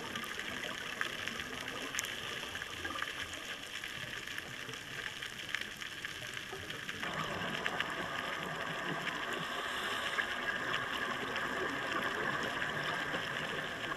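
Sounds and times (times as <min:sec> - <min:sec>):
faint crackling clicks: 0:00.0 - 0:13.9
underwater hiss: 0:07.0 - 0:13.9.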